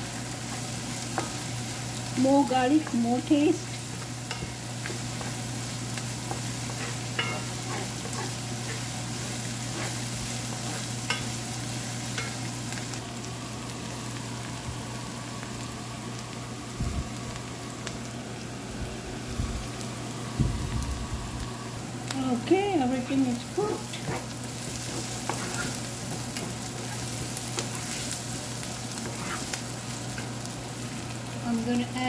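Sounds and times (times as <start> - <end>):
onion and garlic sizzling in oil: 0.0 - 32.0
wooden spatula scraping pan: 23.8 - 28.2, 28.9 - 29.6.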